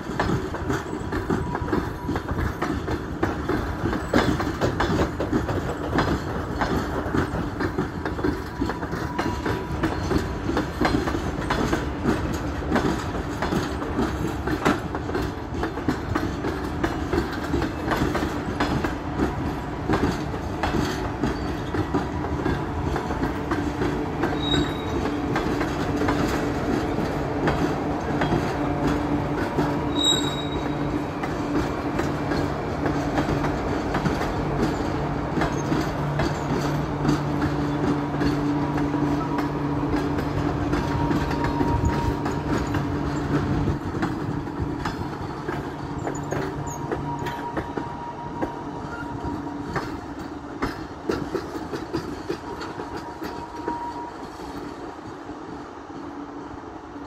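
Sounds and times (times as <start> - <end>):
train wheels clicking over rail joints: 0.0 - 56.6
high wheel squeals: 21.2 - 21.9, 24.2 - 25.2, 29.9 - 30.9.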